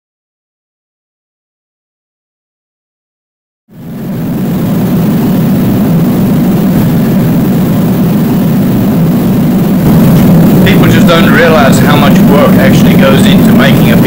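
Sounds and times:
shop machinery roaring: 0:09.4 - 0:14.0.

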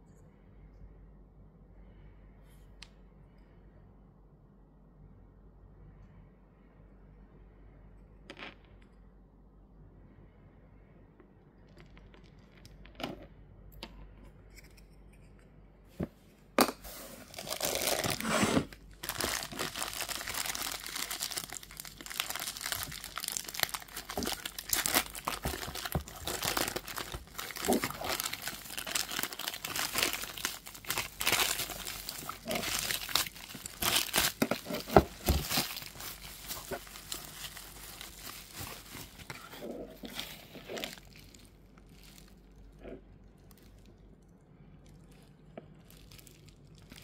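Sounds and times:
plastic bag crinkling: 0:17.1 - 0:42.6, 0:45.1 - 0:47.0.

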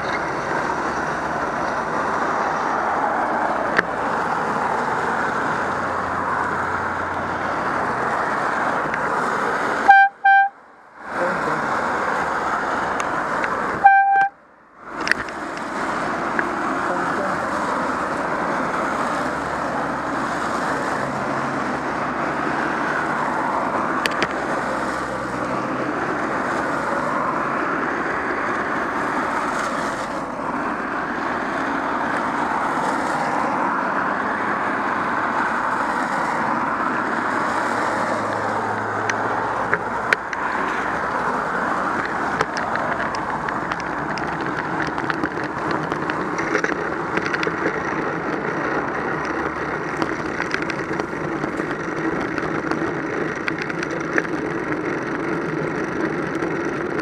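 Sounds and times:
tyres hissing on wet road: 0:11.0 - 0:13.6, 0:15.3 - 0:44.8.

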